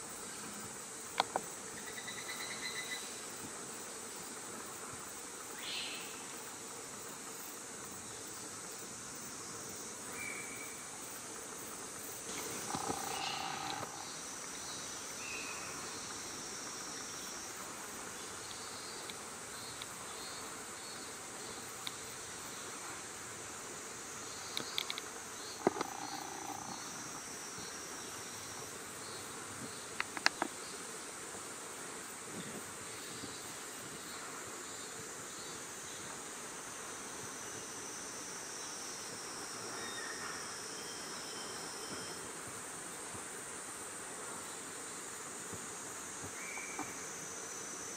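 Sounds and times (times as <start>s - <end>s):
insect chorus: 0.0s - 47.9s
monkey coo calls: 12.7s - 14.0s.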